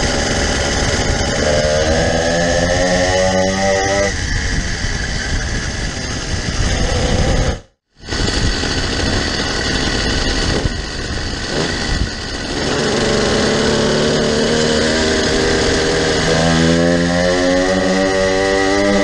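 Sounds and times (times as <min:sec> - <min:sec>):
wind noise: 0:00.0 - 0:13.5
motorized bicycle engines running: 0:08.1 - 0:16.8.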